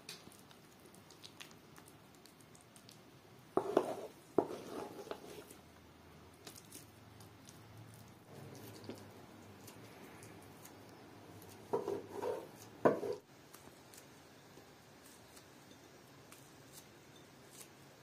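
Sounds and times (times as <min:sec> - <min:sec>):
food squishing: 0:00.0 - 0:05.6, 0:06.3 - 0:14.1.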